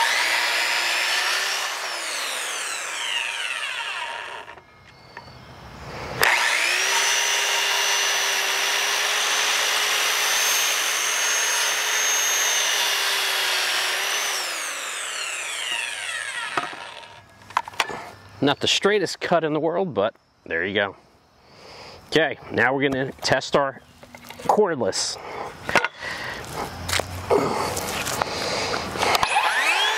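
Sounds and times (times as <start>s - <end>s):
circular saw cutting wood: 0.0s - 4.6s, 6.2s - 17.3s, 29.0s - 29.9s.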